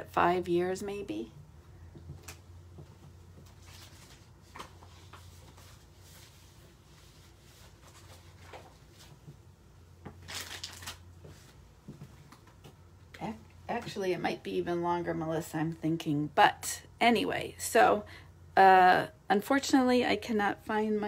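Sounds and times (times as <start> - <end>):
low steady hum: 0.0 - 21.0
paper rustling: 3.5 - 9.2.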